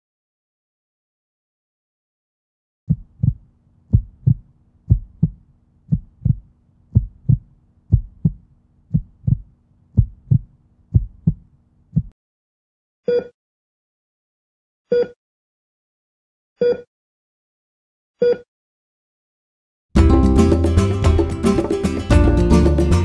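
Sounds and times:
heartbeat thumps: 2.9 - 12.1.

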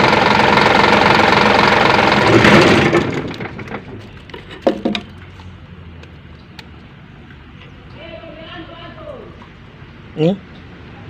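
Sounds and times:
forklift engine running: 0.0 - 4.6.

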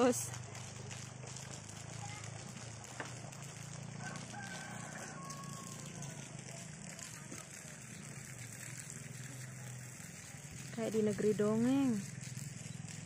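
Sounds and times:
rooster crowing faintly: 3.8 - 6.6.

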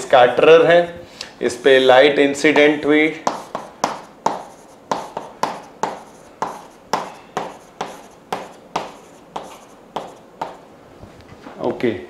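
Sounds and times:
chalk tapping and scraping: 2.5 - 10.6.

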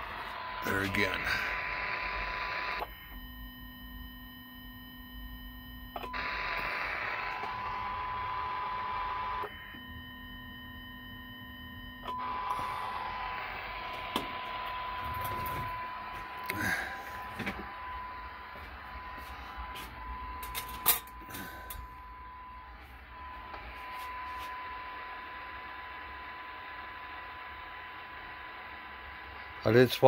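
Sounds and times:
buzzing whine: 0.0 - 30.0
test tone through radio speaker: 0.0 - 30.0.

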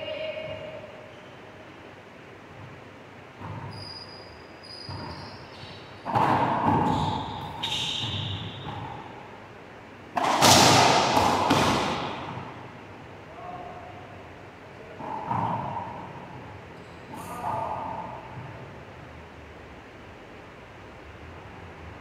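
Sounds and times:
sneakers squeaking on wooden floor: 2.5 - 9.2
ball cracking off racquets and walls: 6.0 - 9.2, 10.1 - 12.9.

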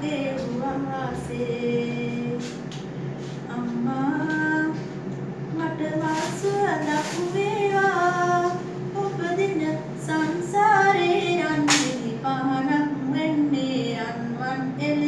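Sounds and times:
woman singing solo: 3.5 - 15.0.

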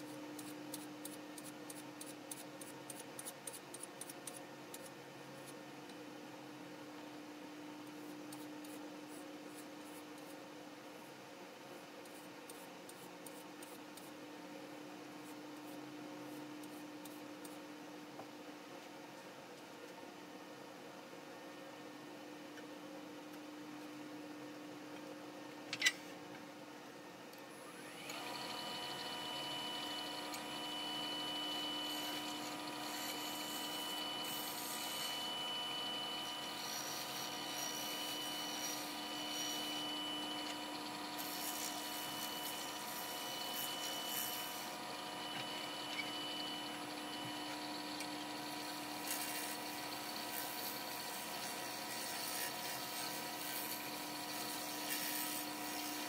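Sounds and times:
wood lathe motor humming: 28.0 - 50.8.

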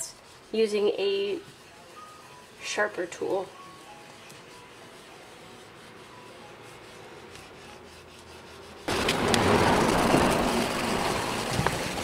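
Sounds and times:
metal spoon rubbing paper: 0.0 - 9.0.

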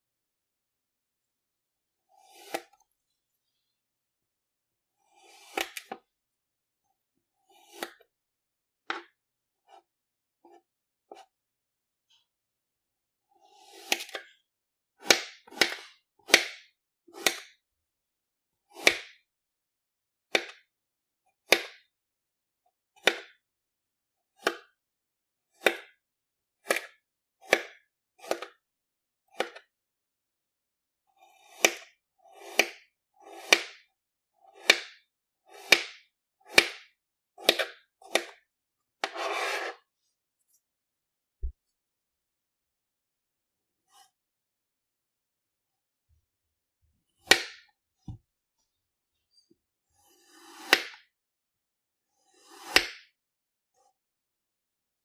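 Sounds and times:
blade scraping sand: 39.0 - 39.9.

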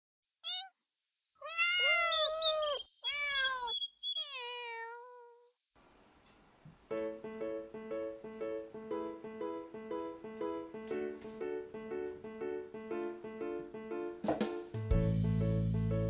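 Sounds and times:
cat meowing: 0.4 - 0.8, 1.4 - 5.5
plucked string music with beat: 14.2 - 15.8.

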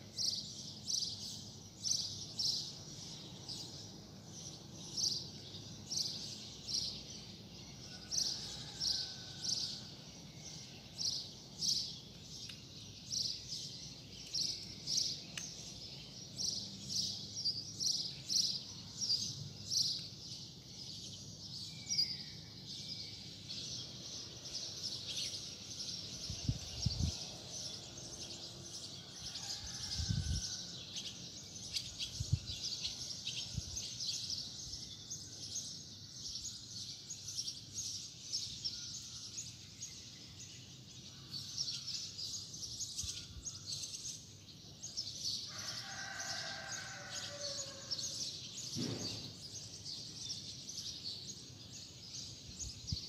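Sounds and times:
street background noise: 23.2 - 34.0, 43.9 - 50.6.

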